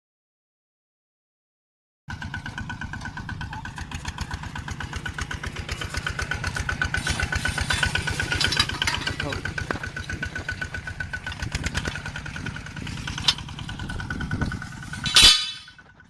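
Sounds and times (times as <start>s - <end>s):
tractor engine chugging: 2.1s - 16.0s
steady higher whine: 5.7s - 16.0s.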